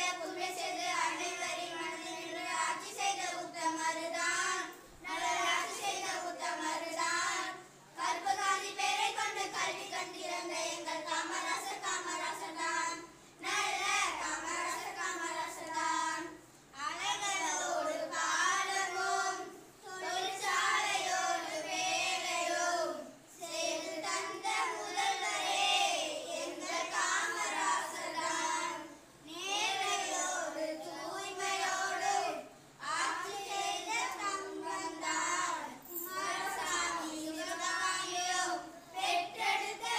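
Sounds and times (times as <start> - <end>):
children singing into a microphone: 17.0 - 39.9.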